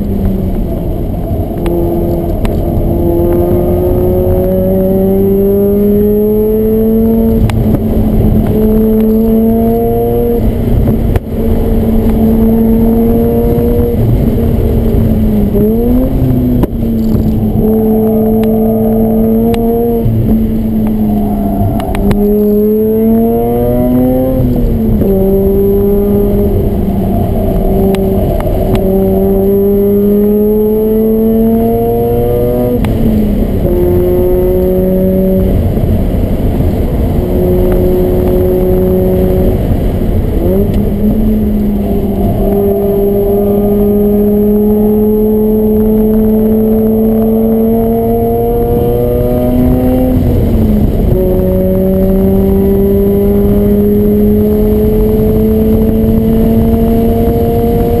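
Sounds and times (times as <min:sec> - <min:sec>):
rotary engine revving: 0:01.2 - 0:58.0.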